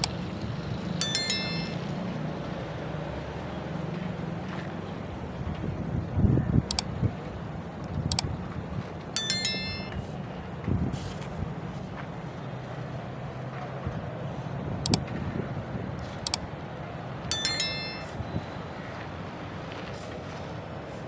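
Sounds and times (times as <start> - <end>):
bright ringing chime: 1.0 - 1.9, 9.2 - 10.1, 17.3 - 18.2.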